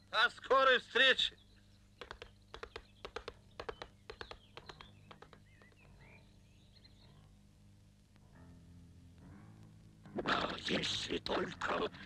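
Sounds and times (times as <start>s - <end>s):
faint bird-like chirps: 1.2s - 7.5s
cartoon galloping hooves: 2.0s - 6.0s.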